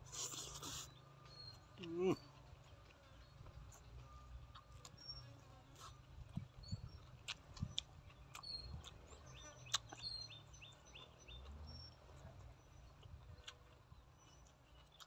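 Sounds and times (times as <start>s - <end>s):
chewing food: 0.0s - 15.0s
small birds chirping: 0.0s - 15.0s
wet mouth clicks and crunches: 0.1s - 0.9s, 5.8s - 10.1s.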